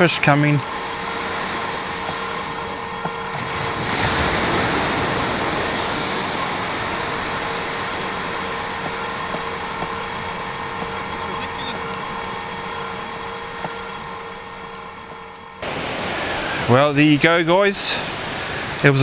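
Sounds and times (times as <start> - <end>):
surf washing on beach: 0.0 - 11.8, 15.6 - 19.0
faint hum: 0.0 - 19.0.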